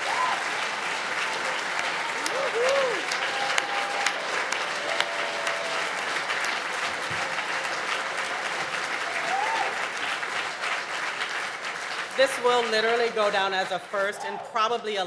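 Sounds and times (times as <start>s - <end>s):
people whooping: 0.0s - 6.2s, 7.1s - 9.9s
audience applauding: 0.0s - 14.7s.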